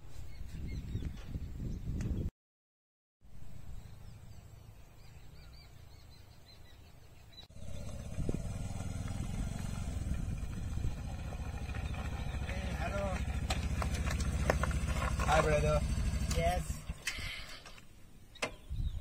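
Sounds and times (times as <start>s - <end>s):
motorcycle engine running: 7.5s - 17.0s
low rumble: 7.6s - 17.0s.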